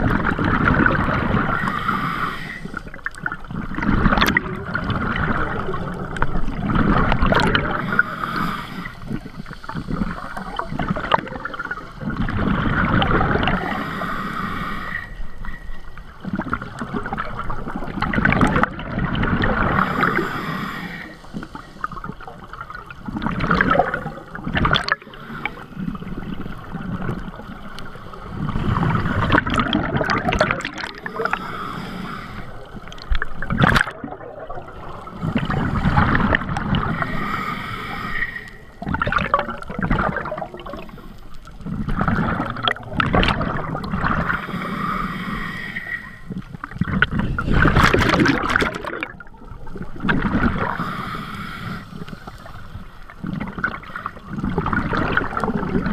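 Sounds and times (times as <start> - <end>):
gurgling exhaled bubbles: 0.0 - 55.9
regulator hissing inhale: 1.5 - 3.0, 7.8 - 10.7, 13.5 - 16.0, 19.8 - 22.5, 25.0 - 26.8, 30.8 - 33.0, 36.9 - 38.8, 44.2 - 46.6, 50.6 - 53.2.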